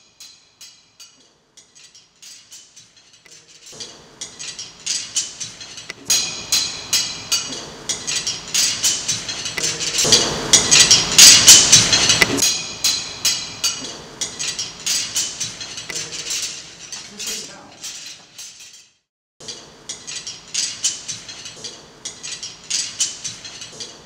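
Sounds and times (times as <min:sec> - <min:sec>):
rapid clicking and clinking taps: 0:01.2 - 0:12.4.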